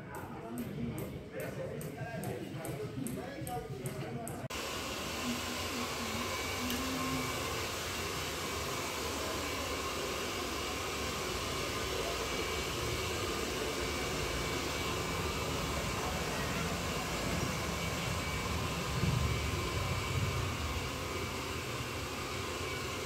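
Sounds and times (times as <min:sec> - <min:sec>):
steady rushing noise: 0:14.1 - 0:23.0.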